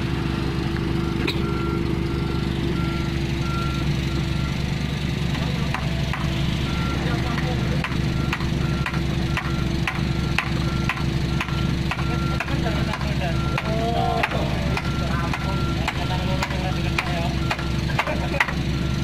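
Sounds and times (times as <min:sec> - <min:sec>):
diesel engine running: 0:00.0 - 0:19.0
warning beeper short beeps: 0:06.6 - 0:19.0
regular clicking: 0:07.3 - 0:18.6.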